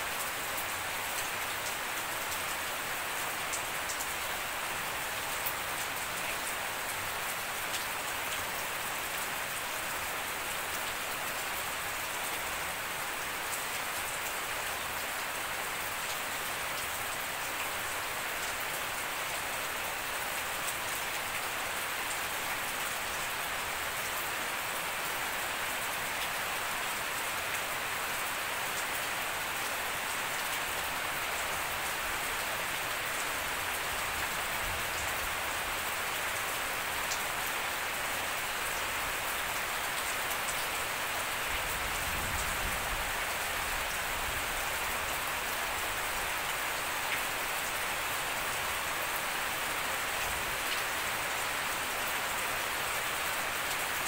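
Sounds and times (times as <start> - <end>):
rain falling on lawn: 0.0 - 54.0.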